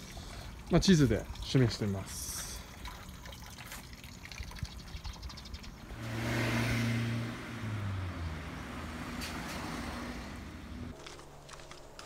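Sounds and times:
car passing by: 5.9s - 10.9s.

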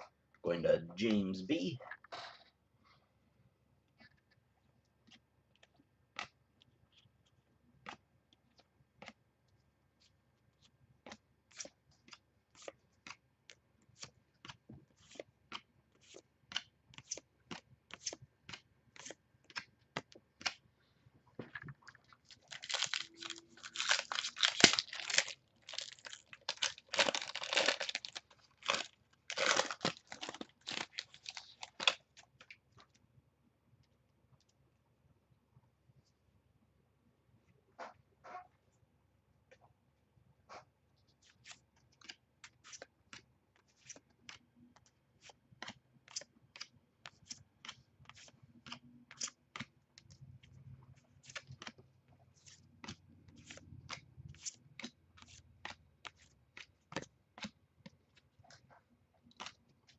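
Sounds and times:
foil wrapper tearing and crinkling: 22.4s - 32.0s.

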